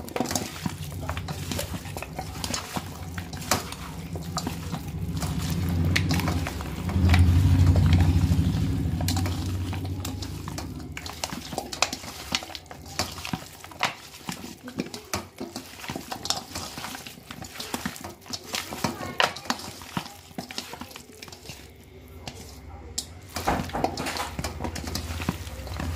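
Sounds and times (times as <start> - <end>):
wet squelching of meat mixed by hand: 0.0 - 25.9
low hum: 0.5 - 12.8.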